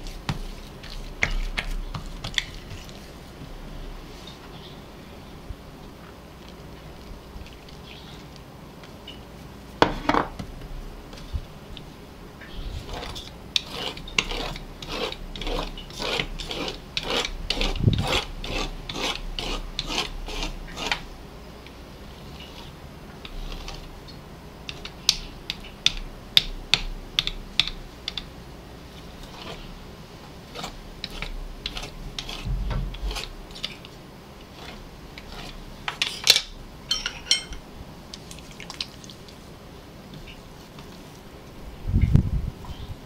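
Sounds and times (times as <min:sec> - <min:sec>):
dull thump: 0:32.4 - 0:33.2.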